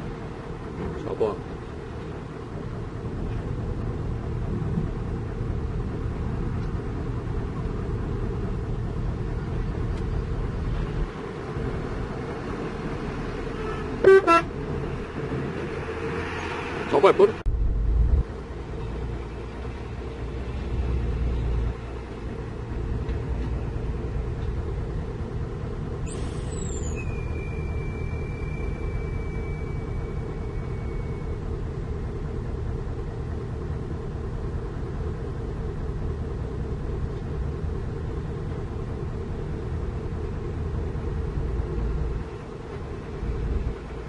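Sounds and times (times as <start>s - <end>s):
truck engines rumbling: 0.0s - 44.0s
high squeal: 26.0s - 31.6s.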